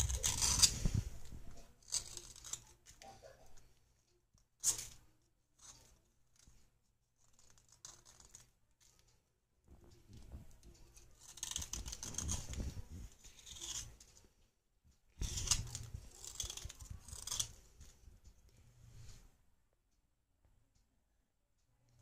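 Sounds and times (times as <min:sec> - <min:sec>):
knife scraping clay: 0:00.0 - 0:03.0, 0:04.6 - 0:05.0, 0:07.2 - 0:09.0, 0:10.9 - 0:14.3, 0:15.2 - 0:18.0.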